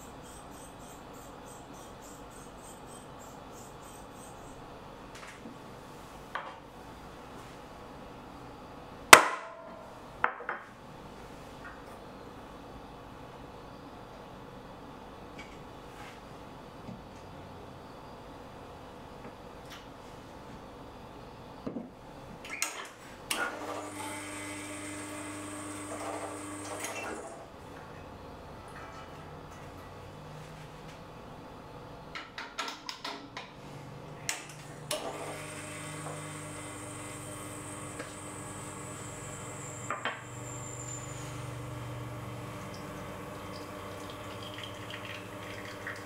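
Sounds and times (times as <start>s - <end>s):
small electric motor humming: 23.8s - 26.9s, 35.2s - 44.5s.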